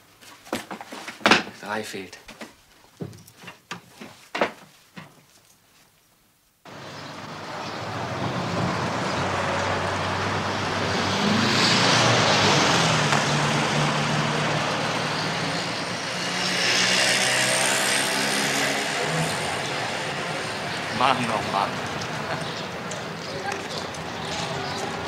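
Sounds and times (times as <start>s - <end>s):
engine hum: 6.7s - 25.0s
vehicles passing whoosh: 6.7s - 25.0s.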